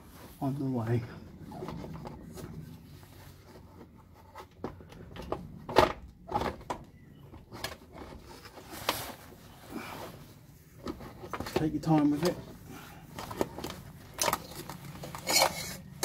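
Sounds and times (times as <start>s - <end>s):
plastic knocking and scraping: 10.8s - 12.6s.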